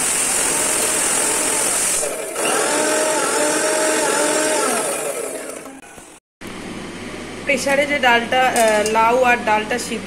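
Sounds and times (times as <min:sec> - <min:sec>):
mixer grinder whining: 0:00.0 - 0:05.9.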